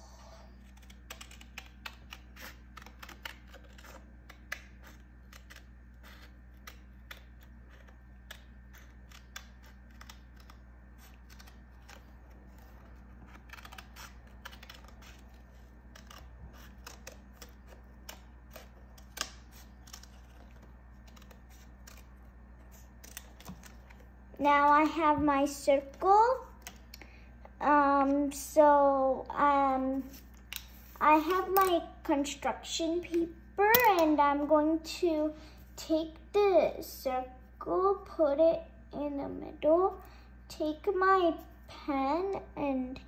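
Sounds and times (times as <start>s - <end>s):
faint low hum: 0.0s - 43.0s
scissors snipping paper: 0.3s - 24.0s.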